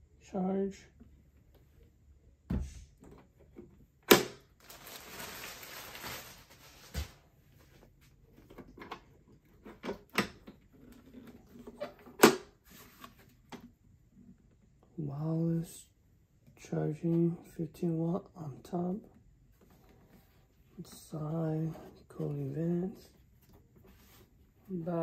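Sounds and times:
plastic bag rustling: 0:04.5 - 0:07.3.

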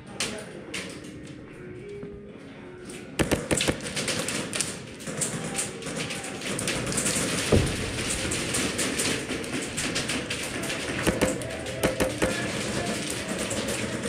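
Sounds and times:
airsoft taps and clicks: 0:03.2 - 0:04.1, 0:11.0 - 0:12.9.

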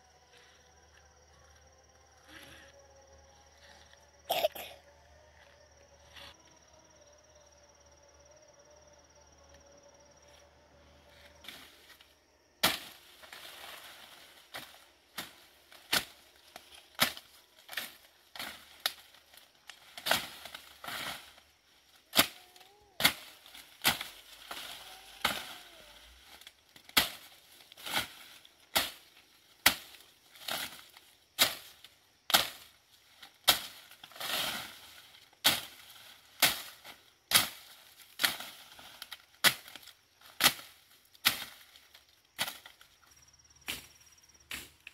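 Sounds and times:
leaves and stems rustling: 0:11.1 - 0:44.9
machete chopping undergrowth: 0:12.6 - 0:21.4, 0:22.1 - 0:25.6, 0:26.2 - 0:42.8, 0:43.6 - 0:44.9.

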